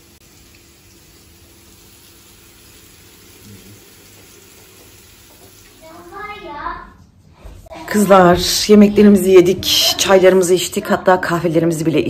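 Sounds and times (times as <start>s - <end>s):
meatballs sizzling in a pan: 0.0s - 5.8s.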